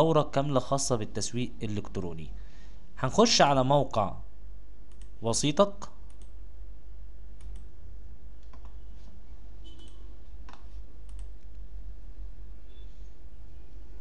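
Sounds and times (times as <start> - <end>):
low electrical hum: 0.0 - 14.0
computer mouse clicks: 4.9 - 5.2, 6.1 - 6.4, 7.4 - 7.7, 8.4 - 8.8, 9.7 - 11.6.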